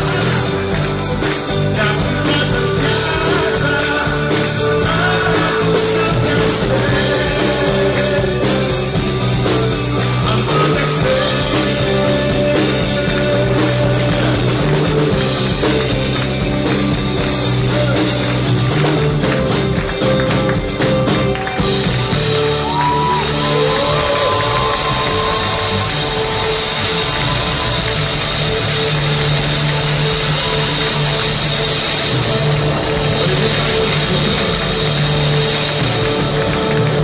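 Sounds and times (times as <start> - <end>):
person singing: 0.0 - 19.3, 32.1 - 36.5
rock band playing live: 0.0 - 37.0.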